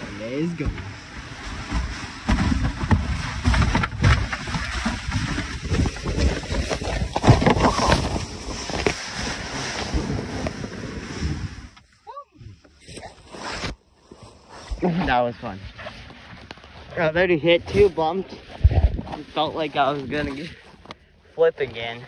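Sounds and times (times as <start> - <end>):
wind buffeting microphone: 0.0 - 11.8, 17.0 - 20.6
kayak scraping over snow: 0.0 - 22.0
kayak knocking on bumps: 0.5 - 11.6.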